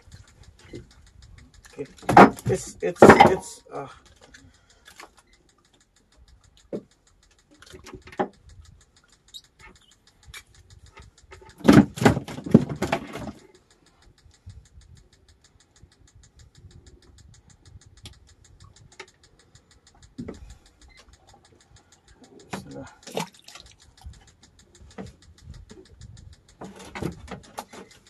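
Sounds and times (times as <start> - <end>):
fishing line handling in wooden boat: 0.0 - 8.4, 18.9 - 28.0.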